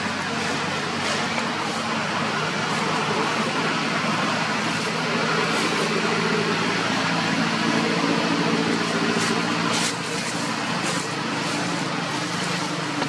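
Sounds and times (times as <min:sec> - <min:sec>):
motor vehicle engine idling: 0:00.0 - 0:13.0.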